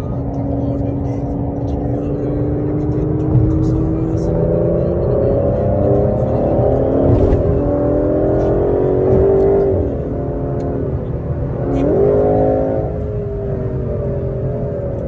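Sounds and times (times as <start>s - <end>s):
car engine accelerating: 0.0s - 15.0s.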